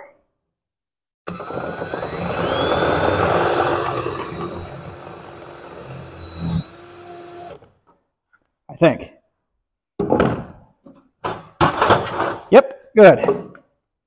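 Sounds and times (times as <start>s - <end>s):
power drill whining: 1.3s - 7.8s.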